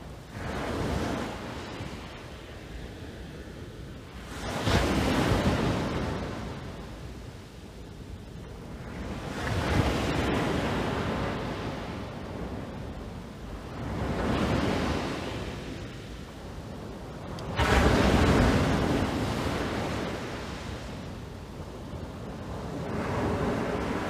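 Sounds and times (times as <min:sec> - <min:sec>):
waves breaking on a beach: 0:00.0 - 0:24.0
wind buffeting microphone: 0:00.0 - 0:24.0.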